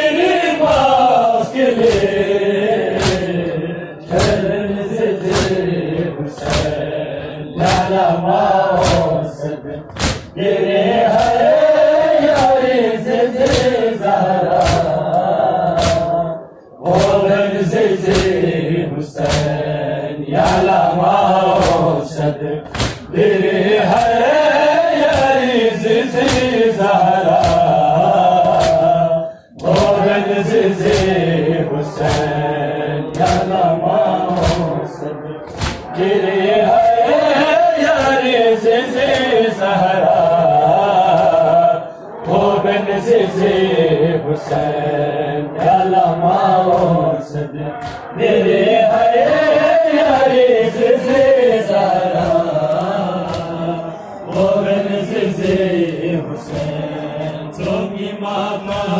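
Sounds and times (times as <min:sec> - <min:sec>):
men chanting a lament: 0:00.0 - 0:58.9
hands beating on chests: 0:01.8 - 0:03.4, 0:04.1 - 0:04.5, 0:05.2 - 0:05.7, 0:06.4 - 0:06.8, 0:08.7 - 0:09.2, 0:09.9 - 0:10.4, 0:11.0 - 0:12.7, 0:13.4 - 0:13.8, 0:14.5 - 0:16.2, 0:18.0 - 0:18.5, 0:22.6 - 0:23.1, 0:26.2 - 0:26.6, 0:27.3 - 0:29.0.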